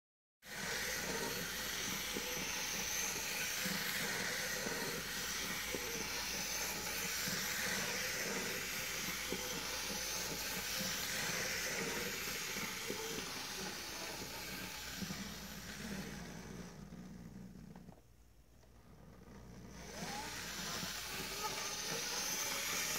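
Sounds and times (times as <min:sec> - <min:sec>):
model train motor whirring: 0:00.5 - 0:18.0, 0:18.8 - 0:22.9.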